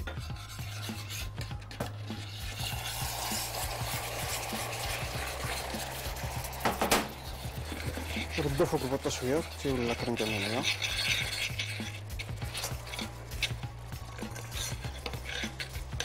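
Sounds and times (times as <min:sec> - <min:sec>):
cream hissing and bubbling: 0:00.0 - 0:16.0
whisk scraping a pan: 0:00.0 - 0:16.0.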